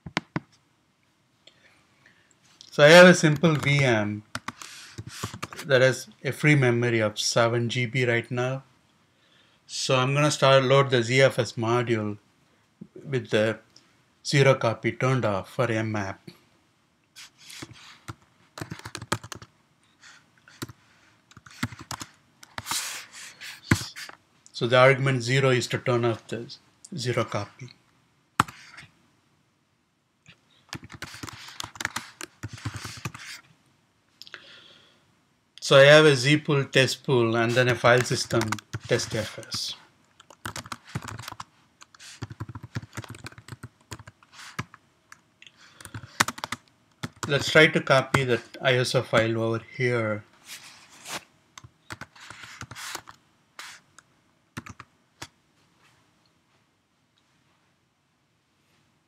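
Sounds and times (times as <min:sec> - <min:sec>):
computer keyboard typing: 0:03.4 - 0:05.6, 0:17.6 - 0:19.5, 0:20.6 - 0:22.7, 0:28.4 - 0:28.7, 0:30.7 - 0:33.3, 0:38.0 - 0:39.4, 0:40.2 - 0:44.7, 0:45.8 - 0:47.5, 0:51.9 - 0:53.8, 0:54.6 - 0:54.9.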